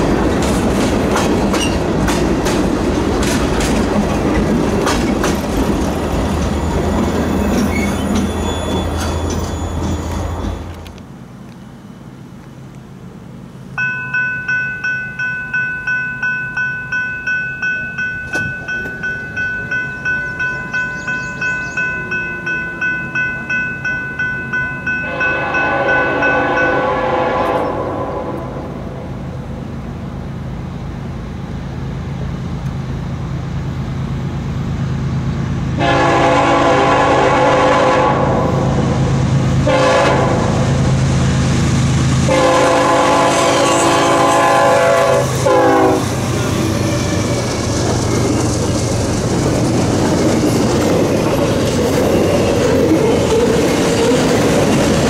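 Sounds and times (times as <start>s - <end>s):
train rumble: 0.0s - 55.0s
warning bell ringing: 13.8s - 27.0s
locomotive horn blasts: 25.0s - 29.0s, 35.8s - 38.8s, 39.6s - 40.7s, 42.3s - 46.2s.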